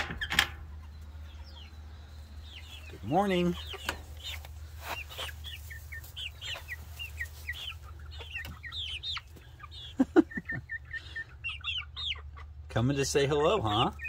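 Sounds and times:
chicks peeping and chirping: 0.0 - 14.0.

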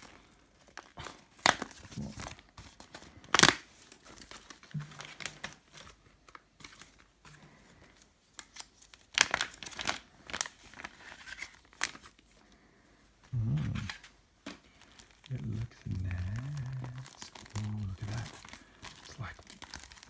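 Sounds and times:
plastic bag crinkling: 0.0 - 7.1, 7.8 - 12.5, 13.4 - 20.0
person humming low: 13.3 - 14.0, 15.3 - 18.3.

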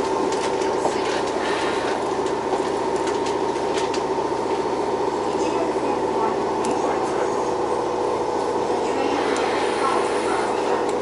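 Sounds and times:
train air compressor humming: 6.2 - 11.0.

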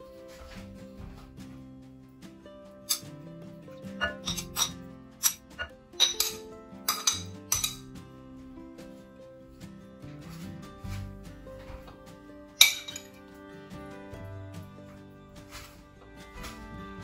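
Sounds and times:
background music: 0.0 - 17.0
ceramic plate and utensil clinking: 2.9 - 3.1, 3.9 - 8.0, 12.6 - 13.2.

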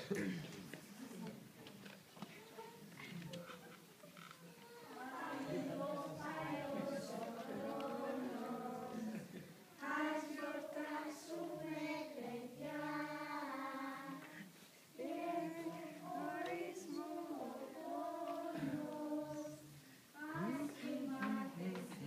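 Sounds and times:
children singing: 4.6 - 22.0.

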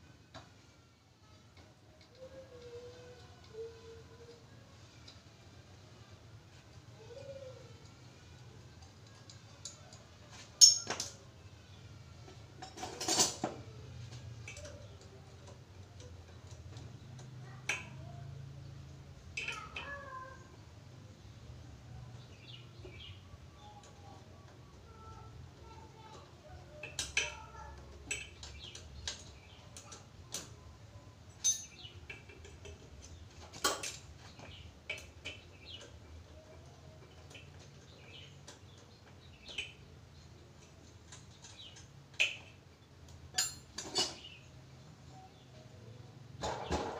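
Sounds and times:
tools rattling: 10.4 - 11.2, 12.6 - 13.6, 31.3 - 36.0, 43.3 - 44.4
metal engine parts clinking: 10.6 - 11.2, 12.6 - 13.6, 31.3 - 35.5, 43.3 - 44.4.

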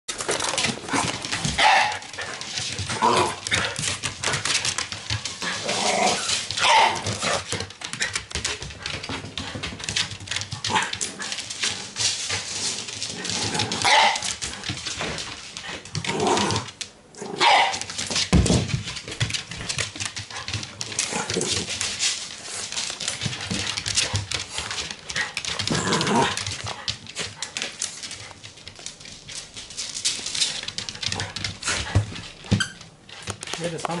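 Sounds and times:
dogs barking excitedly: 1.0 - 8.3, 10.1 - 11.3, 13.6 - 14.7, 17.3 - 18.2.

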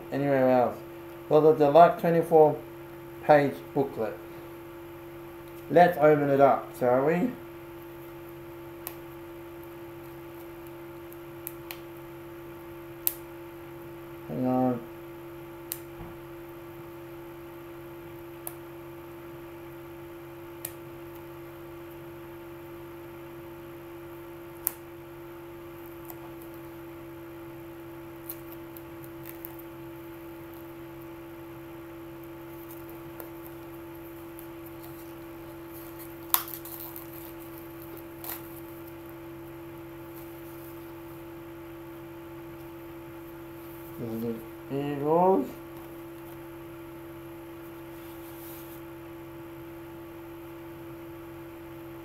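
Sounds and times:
electrical hum: 0.0 - 52.0.

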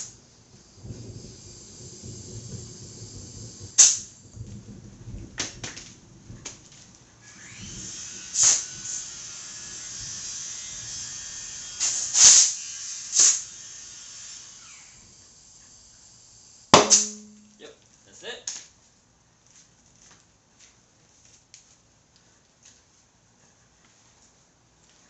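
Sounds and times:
compressed air hissing into a tire: 0.0 - 4.3, 7.2 - 17.3
short loud air bursts: 0.0 - 4.3, 7.2 - 17.4
tire bead popping: 3.5 - 6.9, 16.7 - 17.6.

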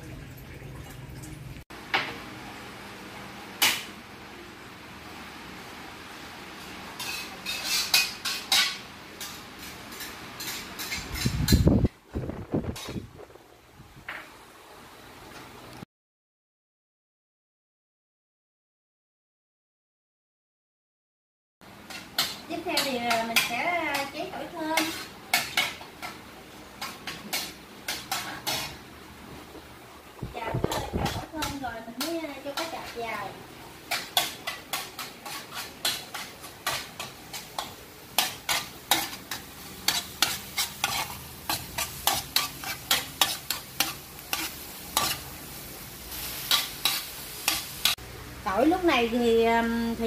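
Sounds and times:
metal spoon scraping a wok: 6.6 - 11.7, 21.9 - 26.2, 26.8 - 28.8, 30.6 - 45.3, 46.0 - 48.0.

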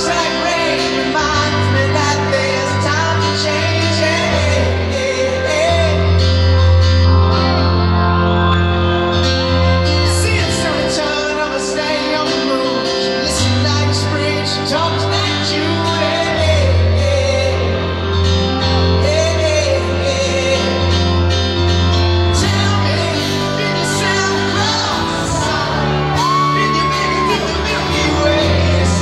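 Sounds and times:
male singer: 0.0 - 7.7, 9.4 - 29.0
electric guitar: 0.0 - 29.0
live rock band: 0.0 - 29.0
low bass notes: 0.0 - 29.0
piano: 0.0 - 29.0
drums: 8.7 - 29.0.

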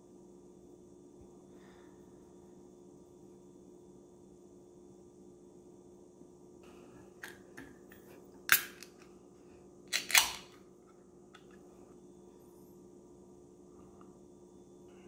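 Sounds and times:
can ring-pull opening with hiss: 8.5 - 9.0, 9.9 - 10.6.

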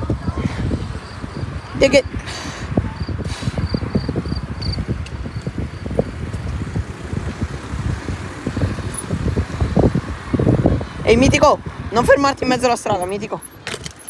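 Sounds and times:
wind buffeting microphone: 0.0 - 14.0
bike tyre rumble on pavement: 2.8 - 11.9.

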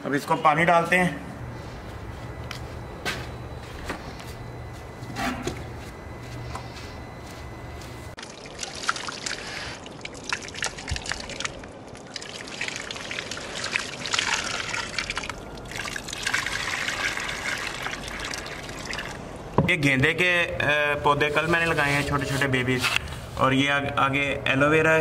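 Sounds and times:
low steady hum: 0.0 - 25.0
water trickling onto soil: 8.2 - 19.2.

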